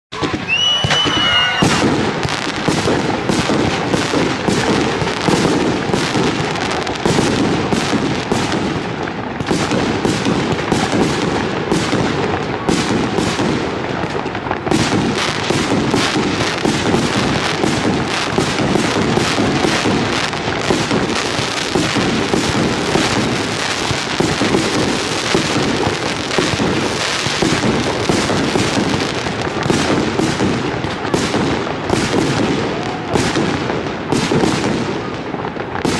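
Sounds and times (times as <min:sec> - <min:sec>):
firework whistle: 0:00.1 - 0:05.5
fireworks launching and bursting: 0:00.1 - 0:35.9.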